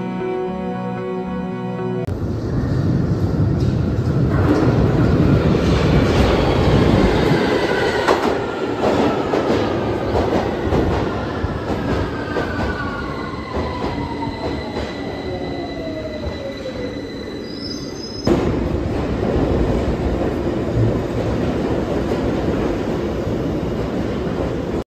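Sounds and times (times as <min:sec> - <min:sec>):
wheels rumbling on rail: 0:02.1 - 0:12.8
underground train rumbling: 0:02.1 - 0:24.8.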